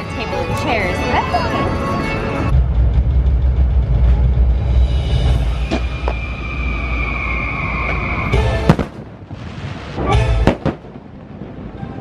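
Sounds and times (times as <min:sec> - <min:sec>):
show music: 0:00.0 - 0:02.7
fireworks bangs: 0:07.7 - 0:12.0.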